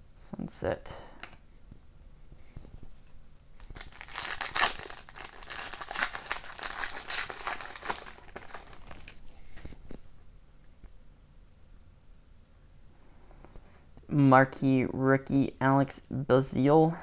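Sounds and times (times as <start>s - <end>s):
foil wrapper crinkling: 3.6s - 9.2s.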